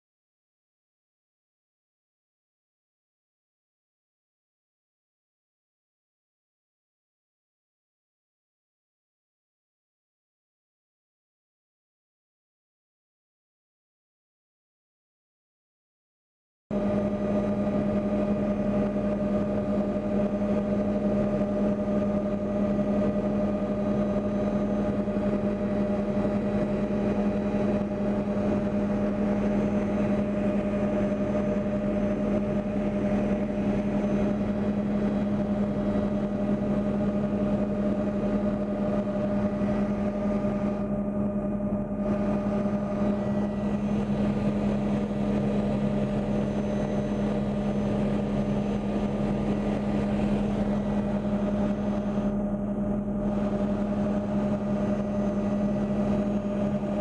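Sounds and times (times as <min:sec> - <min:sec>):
aircraft engine droning: 0:16.8 - 0:57.0.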